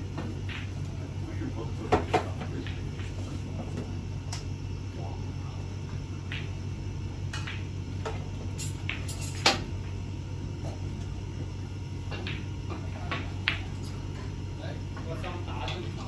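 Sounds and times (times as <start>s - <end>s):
low hum: 0.0s - 16.0s
snooker balls clicking: 7.3s - 9.4s.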